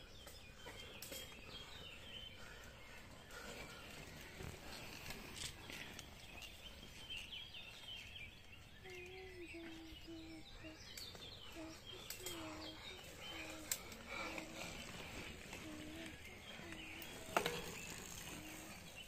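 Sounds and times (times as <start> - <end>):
birds chirping: 0.0 - 19.0
bike clicks and knock: 12.0 - 18.8.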